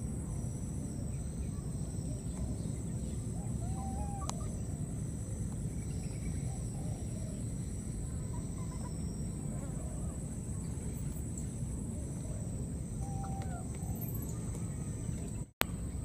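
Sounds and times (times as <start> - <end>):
insects trilling: 0.0 - 16.0
chirping call: 1.4 - 4.7, 12.9 - 15.4.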